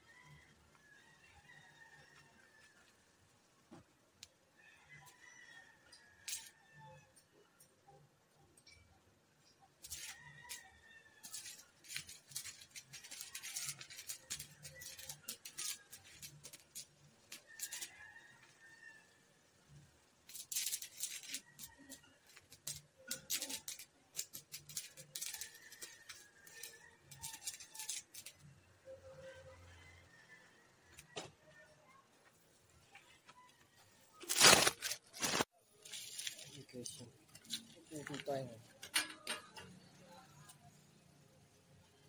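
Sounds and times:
welding arc crackling: 11.2 - 18.6, 19.7 - 28.6.

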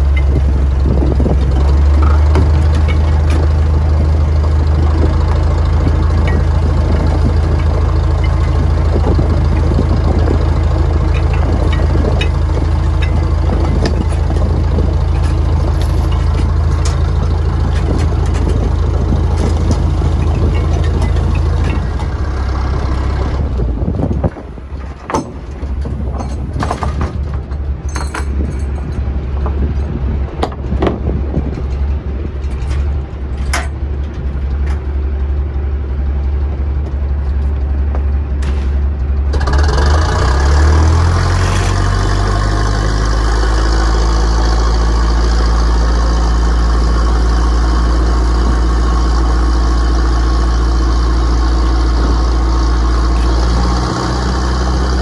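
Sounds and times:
boat engine running: 0.0 - 55.0
knocks and clanks on deck: 1.4 - 3.5, 24.2 - 31.8.

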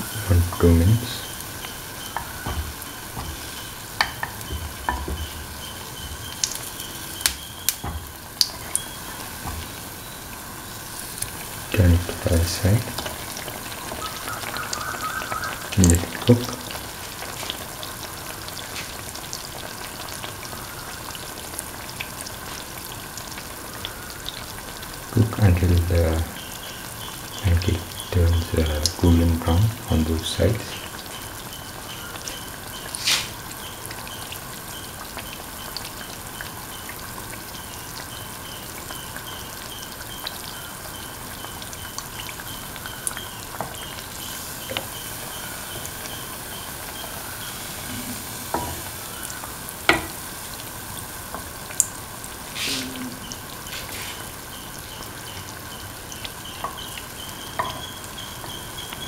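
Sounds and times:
batter sizzling in hot oil: 0.0 - 59.0.

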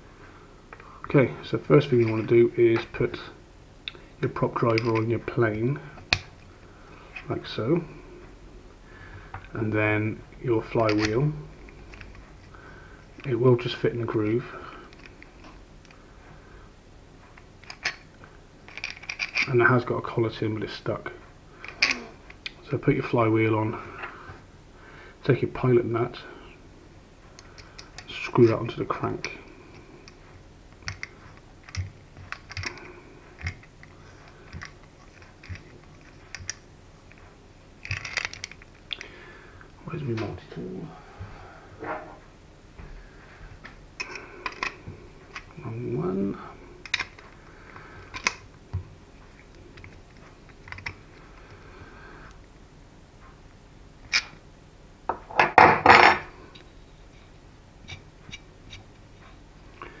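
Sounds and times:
small metal parts clicking: 17.6 - 18.0, 18.7 - 19.5, 21.6 - 22.1, 30.9 - 33.9, 37.8 - 39.1, 46.8 - 47.3, 50.6 - 51.0.

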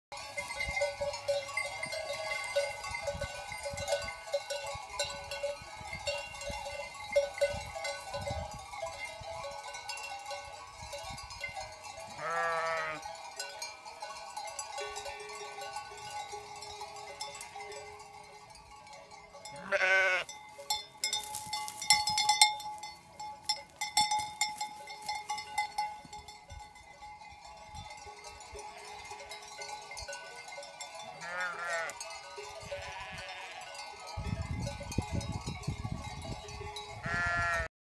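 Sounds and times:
sheep bells clanking: 0.1 - 37.7
sheep bleating: 12.2 - 13.1, 19.6 - 20.3, 31.2 - 32.0, 32.7 - 33.8, 37.0 - 37.7.

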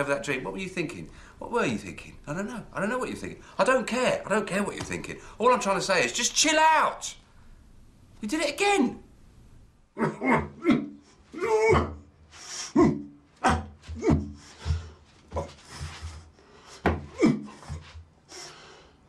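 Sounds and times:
man making wordless vocal noises: 10.0 - 12.1, 12.7 - 14.4.

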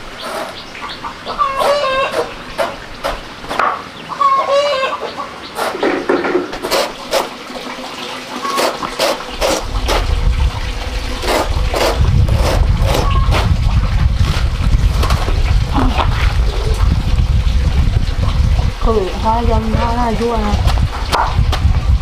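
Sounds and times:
chickens clucking: 0.0 - 10.1.

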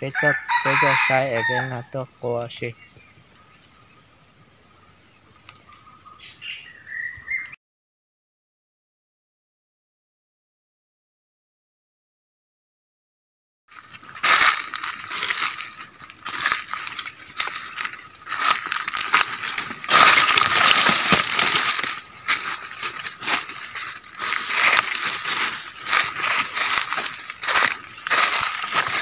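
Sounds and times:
footsteps crunching through dry leaves: 0.0 - 1.9, 13.7 - 29.0.

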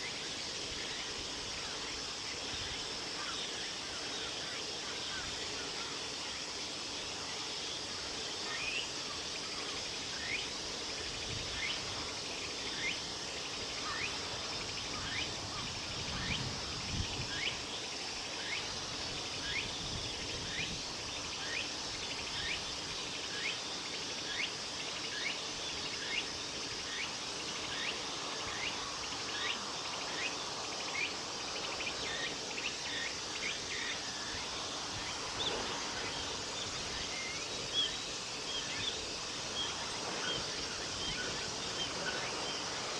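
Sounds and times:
insect chorus hissing: 0.0 - 42.9.

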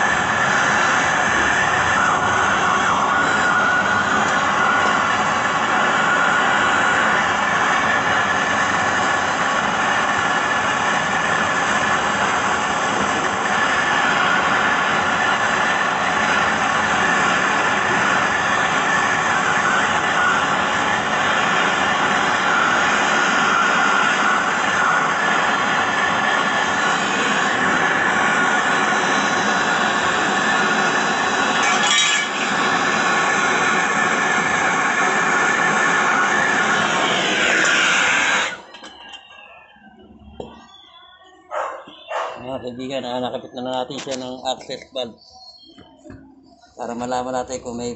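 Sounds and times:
gas torch hissing: 0.0 - 39.3.

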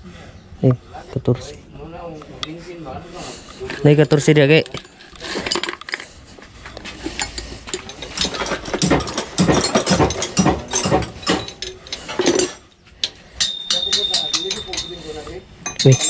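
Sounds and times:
metal tools clinking: 3.4 - 16.0
hand ratchet clicking: 7.1 - 16.0.

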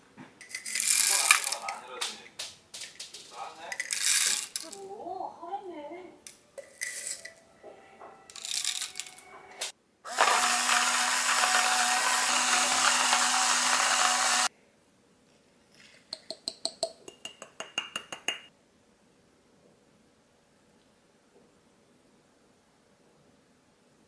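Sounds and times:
coffee beans rattling: 0.4 - 1.8, 2.8 - 4.8, 6.7 - 7.3, 8.3 - 9.2
coffee grinder motor running: 10.1 - 14.5
glass jar clinking: 16.2 - 18.5.

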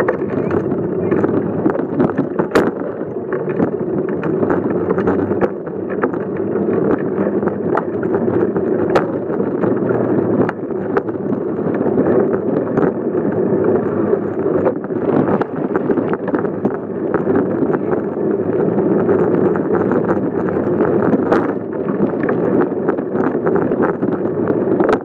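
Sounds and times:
bicycle rolling over bricks: 0.0 - 25.0
wheels knocking on bumps: 0.0 - 25.0.

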